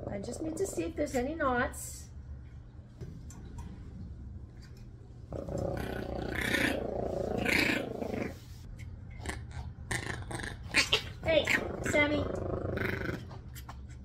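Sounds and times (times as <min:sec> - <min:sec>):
steady low hum: 0:00.0 - 0:14.0
puppy growling: 0:05.3 - 0:08.5, 0:09.2 - 0:13.6.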